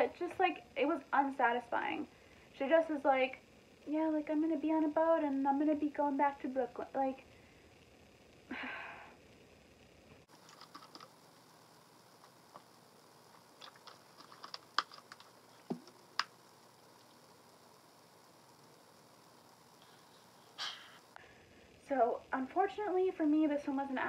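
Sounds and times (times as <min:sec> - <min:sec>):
small objects clicking and tapping: 0:10.4 - 0:11.2, 0:13.3 - 0:17.2
breathy nasal exhale: 0:19.8 - 0:21.7.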